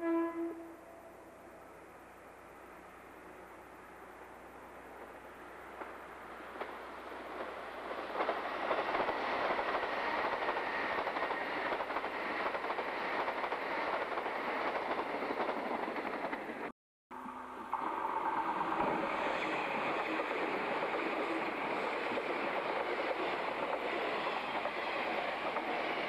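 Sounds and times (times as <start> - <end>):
train wheels clattering over rails: 4.9 - 16.7, 18.9 - 26.0
steady high-pitched tone: 17.1 - 20.2.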